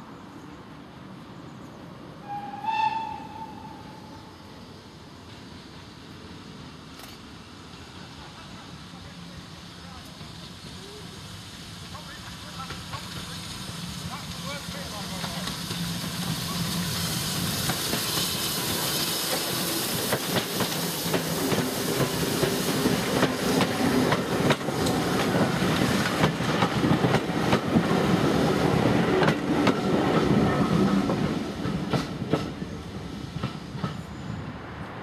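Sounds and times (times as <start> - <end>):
steam locomotive passing: 0.0 - 35.0
steam hissing: 7.8 - 33.9
train wheels clicking over rail joints: 11.5 - 32.6.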